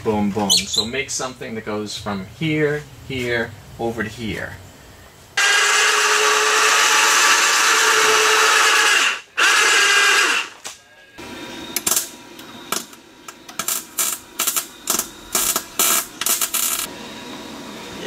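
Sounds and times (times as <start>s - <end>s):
electric winch motor running: 5.4s - 10.6s.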